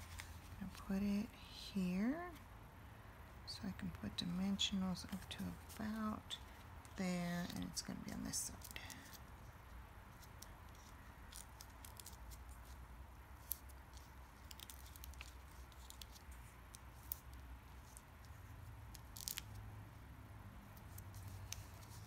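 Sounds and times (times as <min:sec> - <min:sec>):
low steady hum: 0:00.0 - 0:22.0
paper clicks and rustles: 0:10.1 - 0:12.8, 0:13.4 - 0:19.6, 0:20.8 - 0:22.0.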